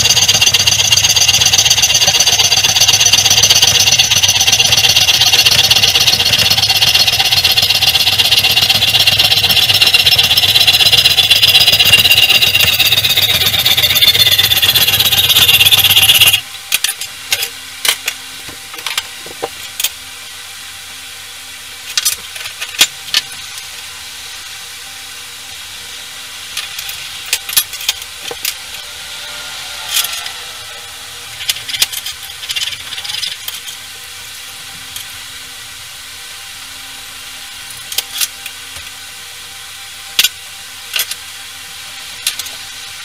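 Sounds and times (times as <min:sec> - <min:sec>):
power tool grinding steel: 0:00.0 - 0:16.4, 0:26.4 - 0:34.3.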